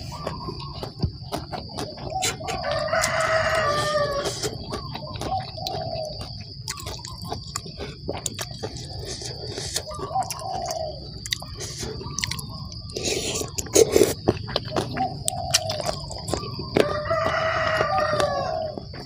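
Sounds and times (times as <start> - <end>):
rooster crowing: 2.4 - 6.3, 15.3 - 19.0.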